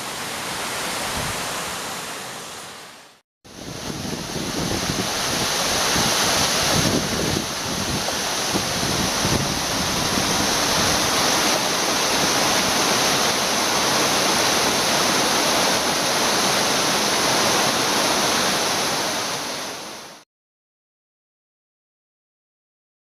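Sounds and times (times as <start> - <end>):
waterfall rushing: 0.0 - 20.2.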